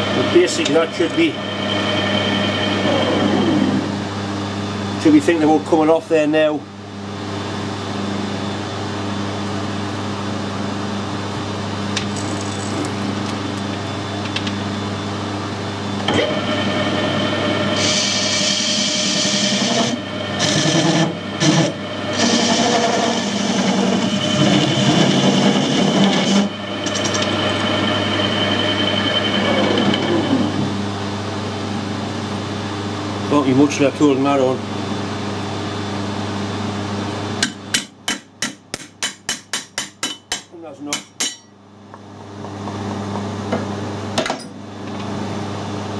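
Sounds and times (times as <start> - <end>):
metal lathe cutting weld: 0.0 - 4.0, 16.1 - 30.6
steady hum: 0.0 - 44.8.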